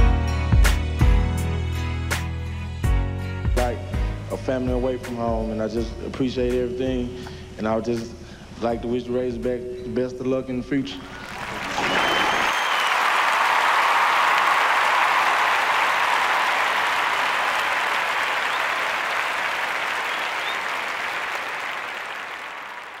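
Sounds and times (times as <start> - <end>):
audience applauding: 11.0 - 23.0.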